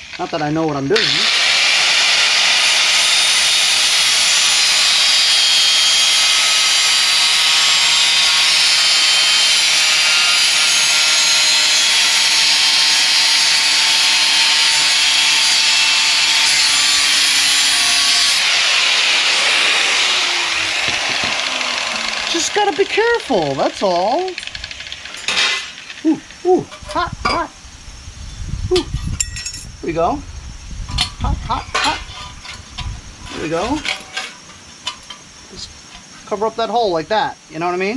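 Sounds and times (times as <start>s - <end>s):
angle grinder grinding steel: 0.9s - 27.5s, 31.0s - 36.2s
grinder disc winding down whine: 3.0s - 26.4s.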